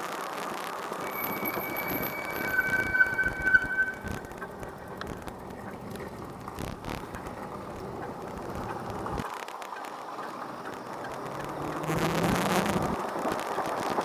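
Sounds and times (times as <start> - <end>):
road rumble: 4.1 - 14.0.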